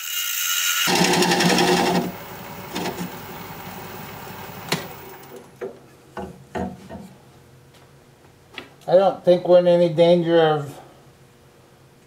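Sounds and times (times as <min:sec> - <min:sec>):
wood lathe winding down: 0:00.0 - 0:05.4.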